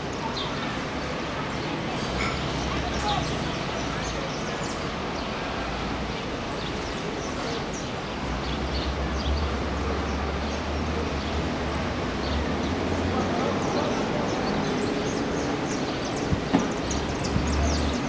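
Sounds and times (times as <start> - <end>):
wind buffeting microphone: 16.1 - 18.0.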